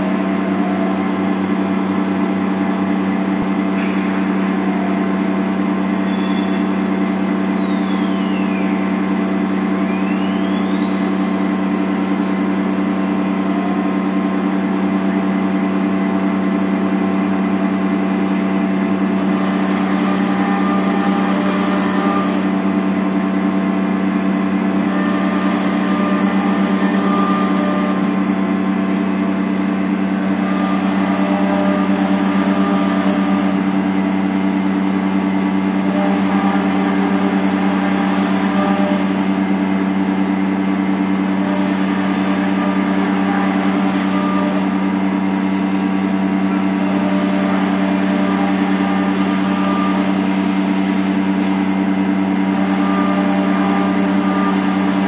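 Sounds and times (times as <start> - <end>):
router machine hum and whine: 0.0 - 55.0
router bit hissing cutting wood: 41.3 - 44.8, 52.4 - 55.0.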